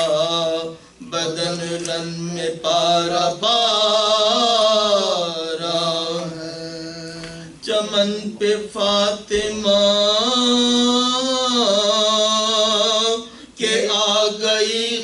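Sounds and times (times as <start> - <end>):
man chanting: 0.0 - 15.0.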